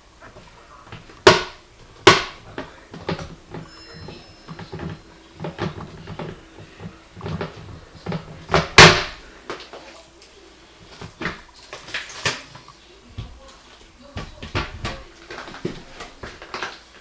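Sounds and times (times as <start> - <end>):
toilet seat clacking on bowl: 0.9 - 9.2.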